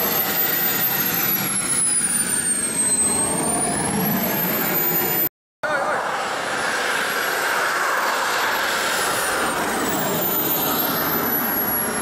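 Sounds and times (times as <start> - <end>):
model jet engine rushing: 0.0 - 12.0.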